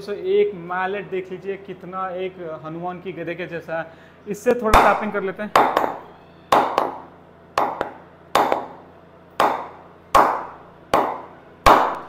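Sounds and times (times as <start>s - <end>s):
mallet knocking cricket bat: 4.7s - 7.0s, 7.6s - 8.8s, 9.4s - 12.0s.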